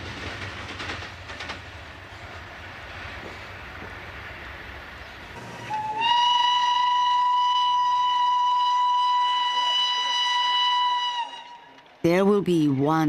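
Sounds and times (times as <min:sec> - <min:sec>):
faint train running noise: 0:00.0 - 0:07.0
train whistle blast: 0:05.4 - 0:11.8.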